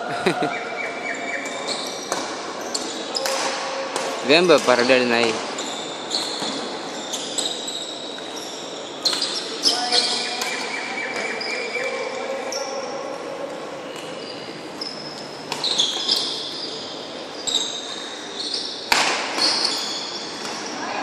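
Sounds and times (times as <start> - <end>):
shoes squeaking on floor: 1.3 - 3.4, 4.2 - 12.9, 13.8 - 21.0
racket hitting shuttlecock: 2.1 - 4.8, 15.4 - 16.2, 18.8 - 19.7.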